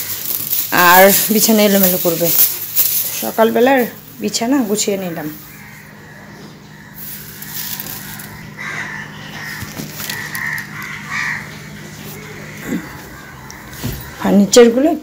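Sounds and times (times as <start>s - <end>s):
steady low hum: 0.0s - 15.0s
crows cawing: 5.0s - 14.6s.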